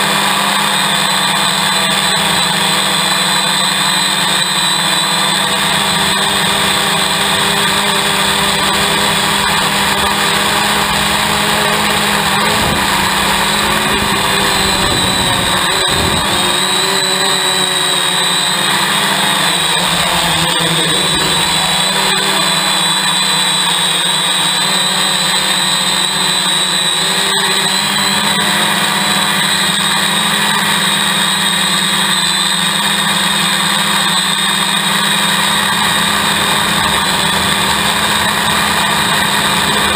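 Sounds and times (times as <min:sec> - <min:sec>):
drone motors whining: 0:00.0 - 0:39.9.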